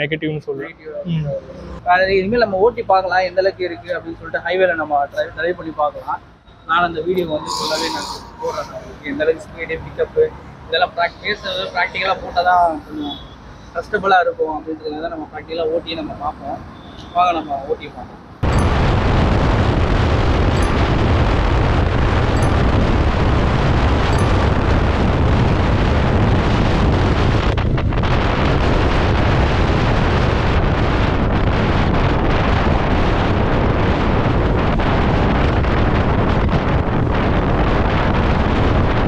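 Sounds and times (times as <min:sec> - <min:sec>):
road noise: 0:00.0 - 0:39.0
wind rushing over microphone: 0:18.4 - 0:39.0.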